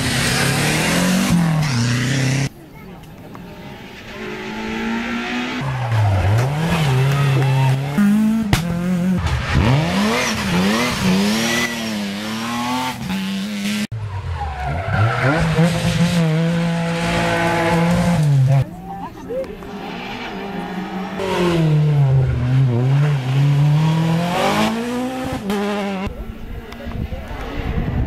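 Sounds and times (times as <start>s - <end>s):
rally car engines revving: 0.0s - 28.0s.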